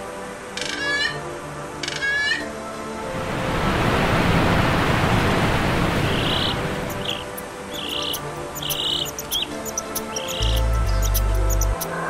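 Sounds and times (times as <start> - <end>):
soft background music: 0.0 - 12.0
waterfall rushing: 2.8 - 10.8.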